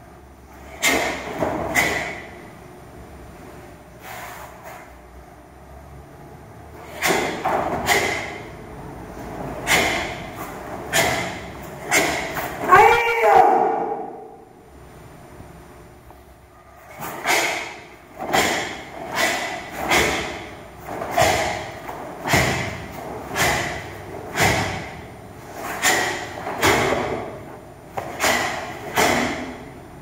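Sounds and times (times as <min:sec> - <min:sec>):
bare feet stamping on mats: 0:18.2 - 0:25.1, 0:25.8 - 0:27.4.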